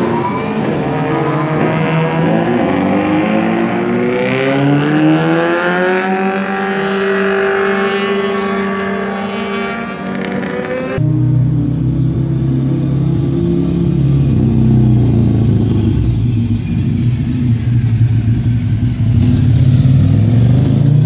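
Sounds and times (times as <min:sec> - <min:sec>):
motorcycles accelerating: 0:00.0 - 0:21.0
deep loud engine note: 0:11.0 - 0:19.3.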